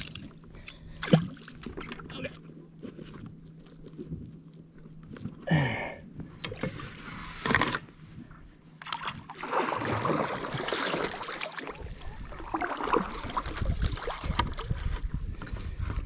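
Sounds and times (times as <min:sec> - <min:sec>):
water lapping against paddleboard: 0:08.8 - 0:16.0.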